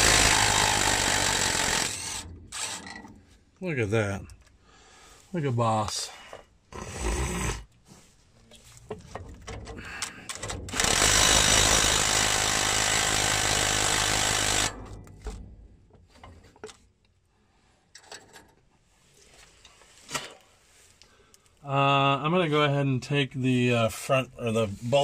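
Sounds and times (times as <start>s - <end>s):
impact wrench hammering: 0.0s - 3.0s, 10.6s - 15.3s.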